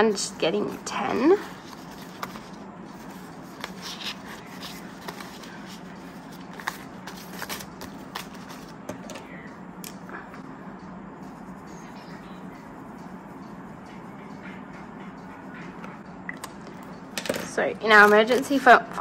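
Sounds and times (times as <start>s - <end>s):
banknotes snapping and rustling: 3.5s - 9.2s.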